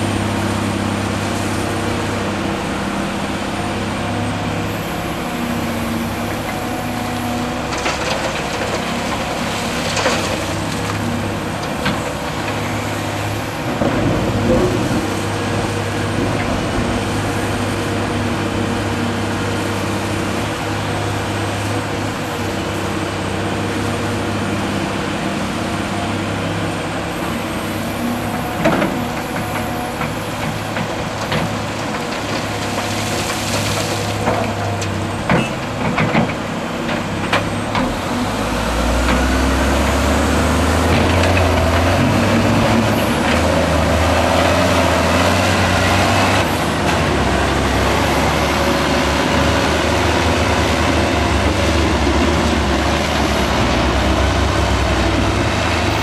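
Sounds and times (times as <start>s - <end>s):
dump truck engine driving off: 0.0s - 56.0s
excavator diesel engine: 0.0s - 56.0s
dirt dumped with knocks and clatter: 5.5s - 19.1s, 27.3s - 55.9s.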